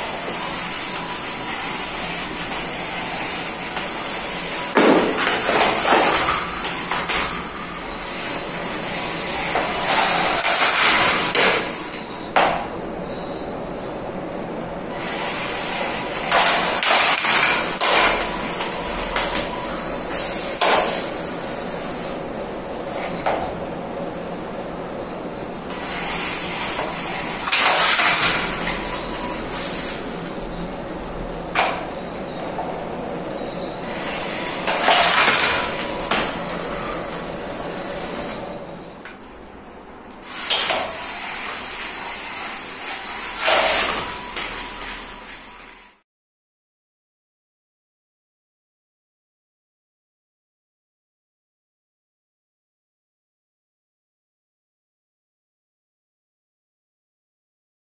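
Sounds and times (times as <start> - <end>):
robot drive motors and wheels: 0.0 - 12.3, 14.9 - 22.2, 25.7 - 30.4, 33.8 - 38.6, 40.2 - 46.0.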